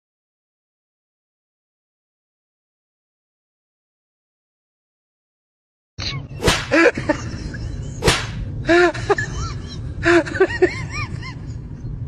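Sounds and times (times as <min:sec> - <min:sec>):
sharp smack: 0:06.4 - 0:06.8, 0:08.0 - 0:08.4.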